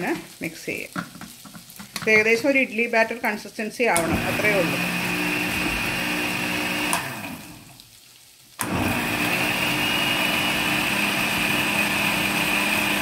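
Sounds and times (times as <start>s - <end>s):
electric blender running: 4.0s - 7.7s, 8.6s - 13.0s.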